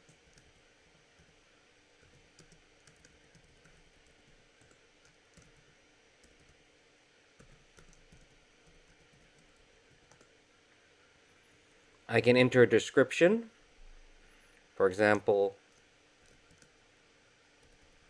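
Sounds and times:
faint keyboard typing: 0.0 - 6.7, 7.3 - 10.4, 14.1 - 16.9, 17.5 - 18.0.

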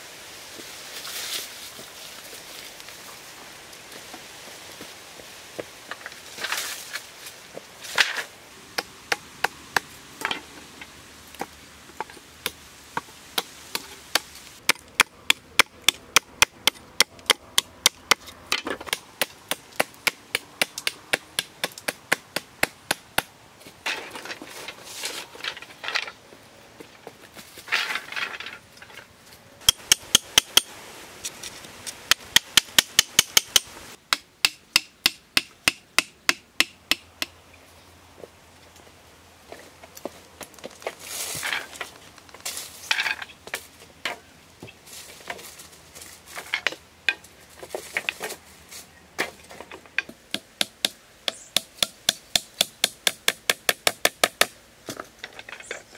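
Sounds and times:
blade chopping wooden poles: 12.1 - 24.4, 29.6 - 30.7, 31.9 - 37.4, 49.2 - 55.4
poles rustling: 23.6 - 34.0.

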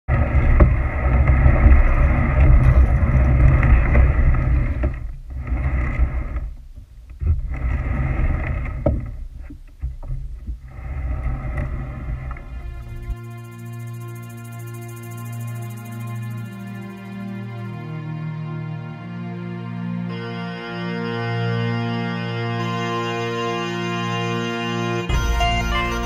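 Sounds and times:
plastic kayak hull on rocks: 0.1 - 12.5
low rumble on microphone: 0.1 - 18.0.

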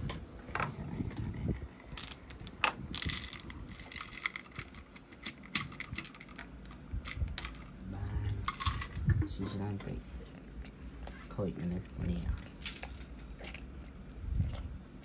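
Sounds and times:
kibble rattling in plastic bottle: 1.8 - 7.8.

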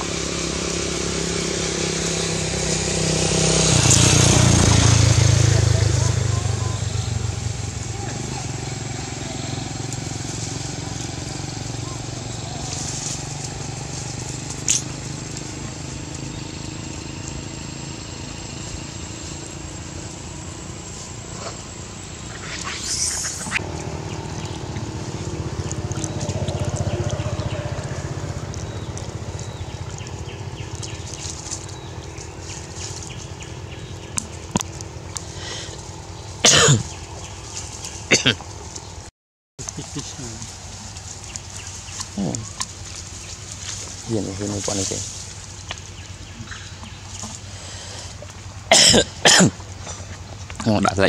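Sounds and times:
steady low hum: 0.0 - 51.0
macaque calls: 22.3 - 30.9.

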